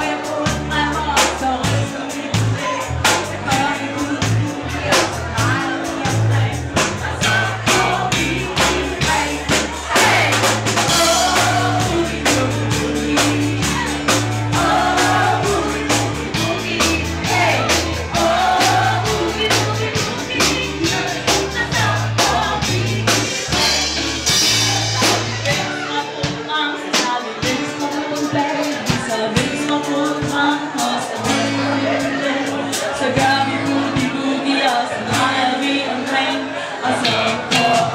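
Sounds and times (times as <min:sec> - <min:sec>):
walking bass line: 0:00.0 - 0:26.5
drums: 0:00.0 - 0:37.9
guitar: 0:00.0 - 0:37.9
person singing: 0:00.0 - 0:37.9.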